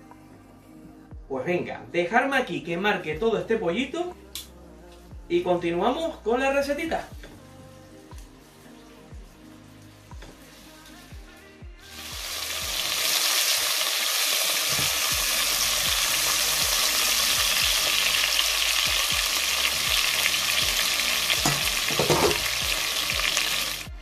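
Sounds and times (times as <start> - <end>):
chicken sizzling in hot oil: 11.9 - 23.9.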